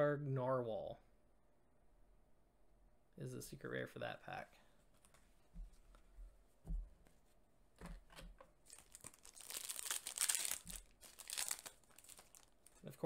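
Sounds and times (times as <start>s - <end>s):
soft thumps: 5.6s - 7.2s
foil wrapper crinkling and tearing: 8.6s - 12.9s.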